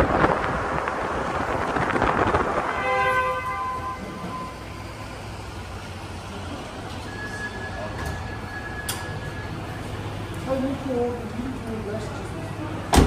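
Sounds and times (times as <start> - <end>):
wind buffeting microphone: 0.0 - 3.5
wind and road noise: 0.0 - 13.0.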